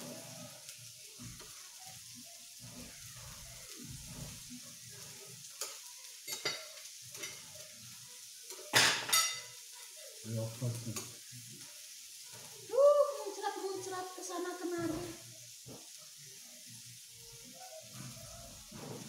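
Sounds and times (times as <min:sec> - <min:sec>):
meat sizzling on a grill: 0:00.0 - 0:19.0
utensils clicking against a plate: 0:05.4 - 0:07.5.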